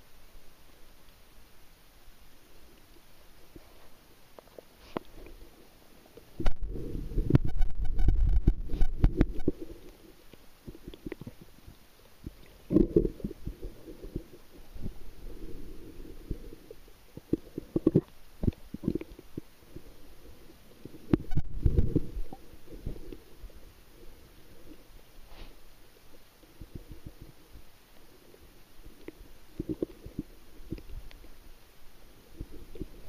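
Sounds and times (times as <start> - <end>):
muffled underwater rumbling: 6.3 - 25.1.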